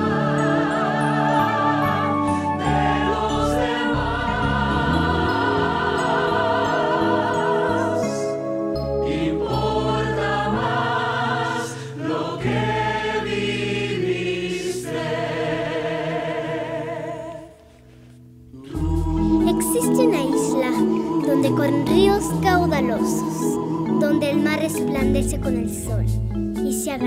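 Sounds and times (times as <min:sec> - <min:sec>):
choir singing with vibrato: 0:00.0 - 0:17.8, 0:18.6 - 0:25.2
instrumental accompaniment: 0:17.8 - 0:27.0.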